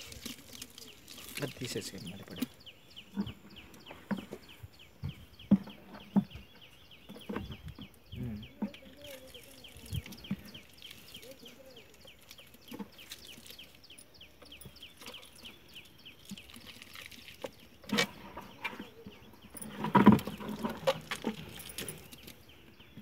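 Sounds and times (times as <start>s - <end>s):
wet squelching and splashing: 0.0s - 2.6s, 9.0s - 13.9s, 14.8s - 18.2s
small bird chirping: 0.0s - 23.0s.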